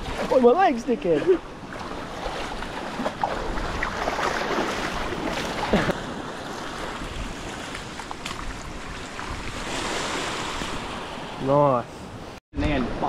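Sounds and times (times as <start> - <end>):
fish splashing in water: 1.7 - 5.9
wind noise on microphone: 6.7 - 11.4.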